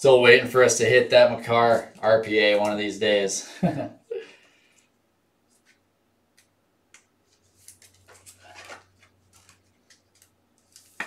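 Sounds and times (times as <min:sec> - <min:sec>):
cards flipped by hand: 0:06.4 - 0:11.0.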